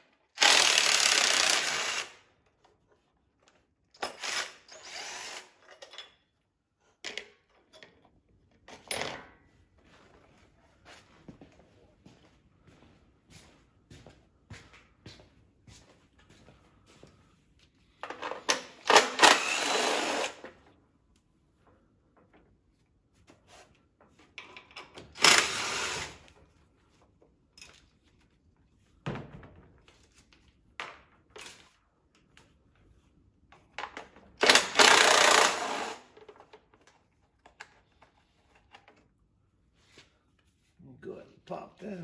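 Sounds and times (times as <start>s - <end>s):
power driver whirring: 18.8s - 20.4s, 25.2s - 26.2s, 34.4s - 36.0s.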